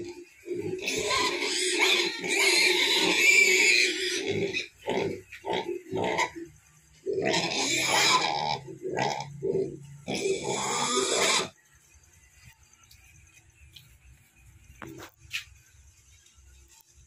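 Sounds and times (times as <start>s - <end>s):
pigs grunting: 0.0s - 11.6s.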